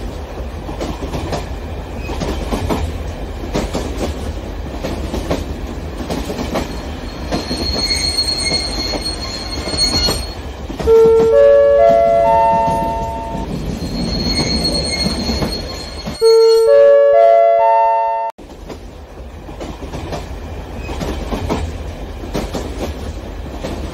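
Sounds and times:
high wheel squeal: 6.6s - 10.6s, 12.7s - 16.7s
electronic chime tune: 12.1s - 18.3s.

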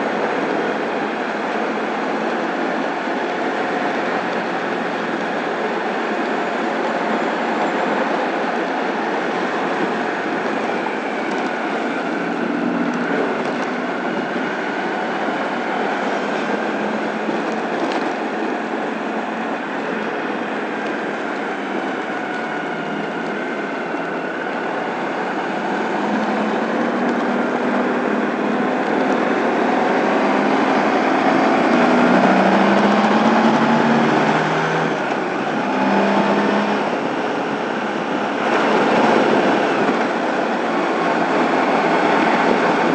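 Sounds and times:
motorcycle engine hum: 0.0s - 42.9s
wind and road noise: 0.0s - 42.9s.

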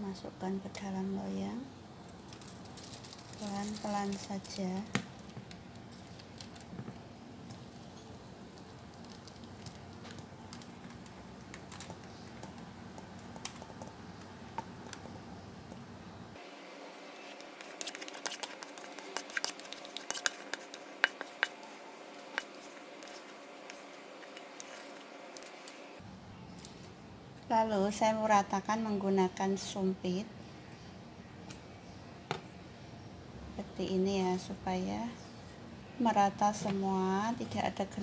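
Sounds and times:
faint background hum: 0.0s - 38.0s
utensil scraping a mixing bowl: 17.1s - 25.8s.

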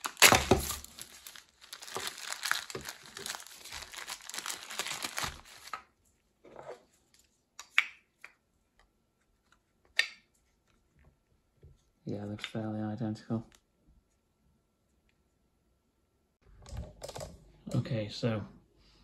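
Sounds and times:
plastic bag crinkling: 0.0s - 5.8s.

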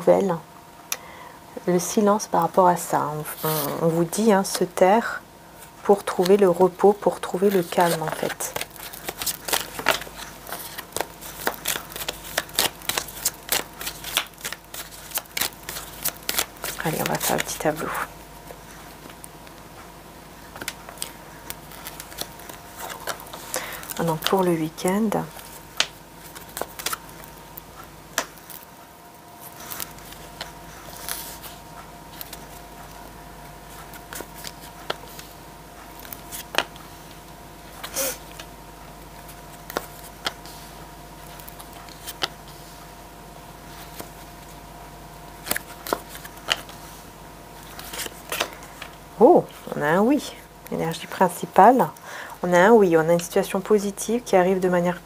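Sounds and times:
faint steady hum: 0.0s - 55.0s
cards being shuffled: 3.2s - 4.1s, 5.9s - 19.3s, 20.5s - 27.4s, 29.4s - 32.6s, 33.7s - 35.3s, 36.0s - 36.9s, 39.2s - 40.7s, 41.3s - 42.6s, 45.4s - 46.9s, 47.6s - 49.0s.

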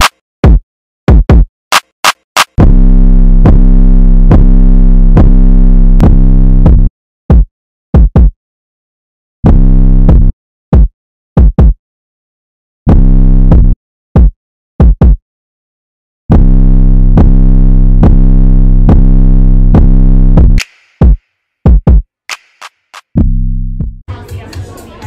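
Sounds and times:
drum-machine hits: 0.0s - 2.8s, 6.0s - 8.4s, 9.5s - 11.8s, 12.9s - 15.2s, 19.8s - 25.0s
deep bass: 2.6s - 8.3s, 9.4s - 11.7s, 12.9s - 15.1s, 16.3s - 20.6s, 23.2s - 25.0s.

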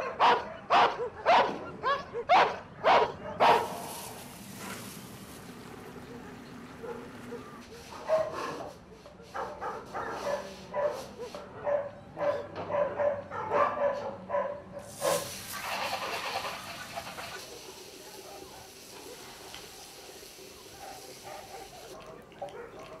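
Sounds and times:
dogs barking: 0.0s - 3.9s, 5.6s - 15.3s, 16.0s - 23.0s
loud hiss: 3.6s - 7.9s, 14.9s - 22.0s.

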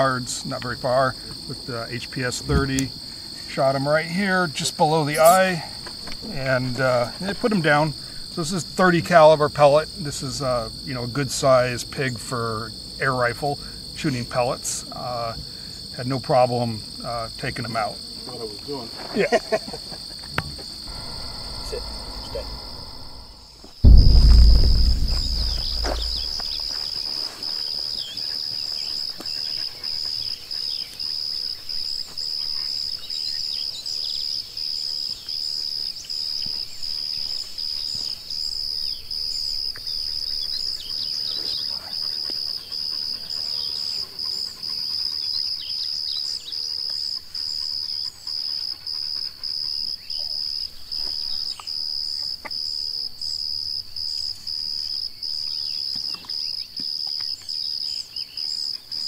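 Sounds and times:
insects buzzing: 17.8s - 24.2s.

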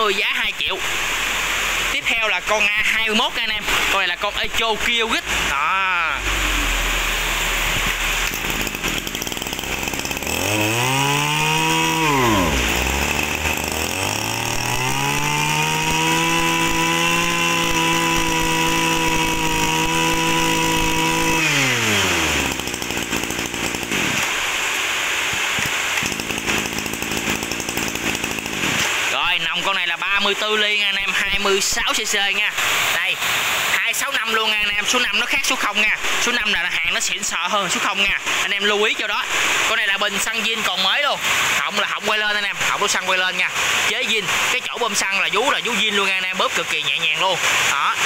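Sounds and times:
brush cutter engine revving: 0.0s - 48.0s.

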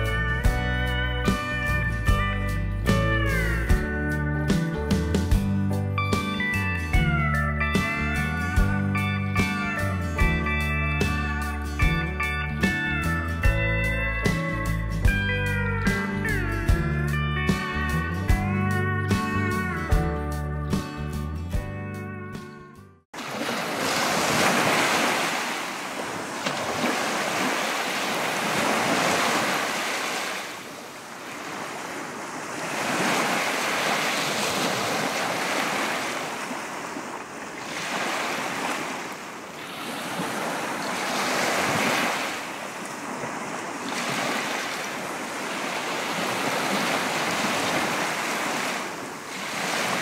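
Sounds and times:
sea waves breaking ashore: 23.2s - 50.0s.

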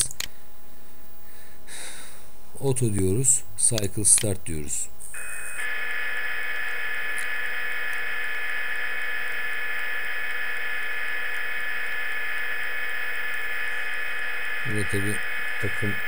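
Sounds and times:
milling spindle electric whine: 5.2s - 16.0s.

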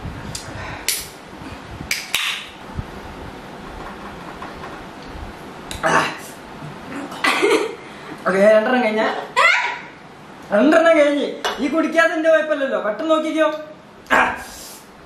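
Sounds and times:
short hissing bursts: 14.4s - 14.9s.

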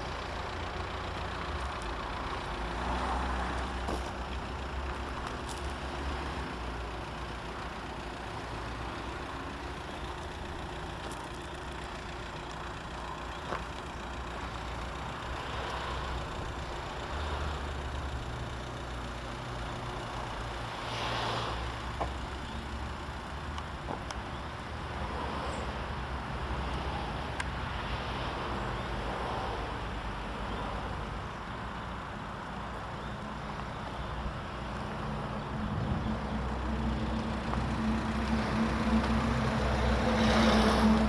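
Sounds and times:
car engine idling: 0.0s - 27.8s, 28.4s - 41.0s.

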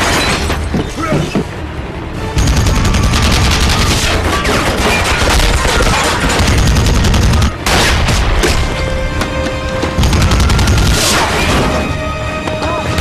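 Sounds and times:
heavy machine gun firing: 2.4s - 8.5s, 10.0s - 11.7s.

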